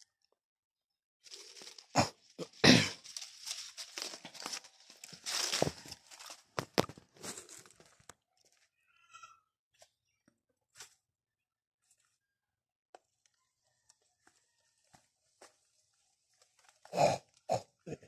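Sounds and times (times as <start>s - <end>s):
leaves and twigs rustling: 1.2s - 8.1s.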